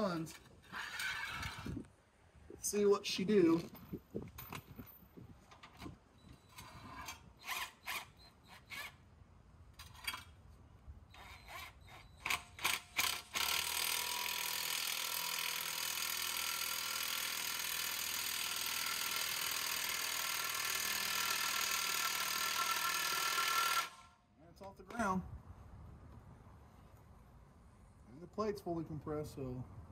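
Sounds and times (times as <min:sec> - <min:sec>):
cordless drill whirring: 0:00.7 - 0:01.8, 0:11.2 - 0:24.1.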